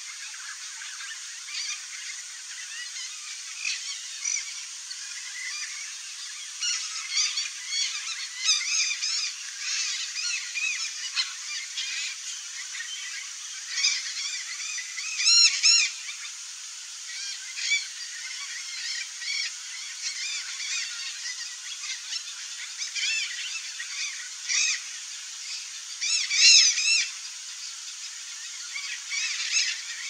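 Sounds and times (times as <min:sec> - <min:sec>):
macaws squawking: 0:26.0 - 0:27.1.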